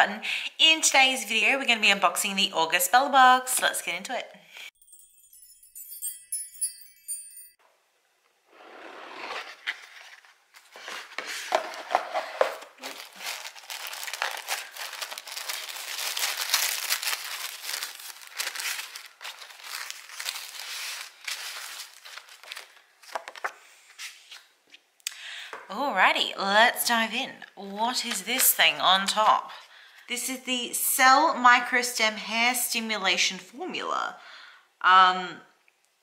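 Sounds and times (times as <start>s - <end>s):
short chiming jingle: 4.8s - 7.6s
tissue paper crinkling: 9.5s - 23.5s.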